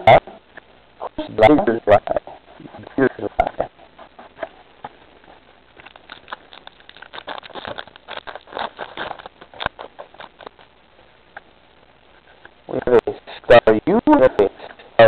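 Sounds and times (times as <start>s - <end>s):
cards crinkling and rustling: 5.7s - 10.7s.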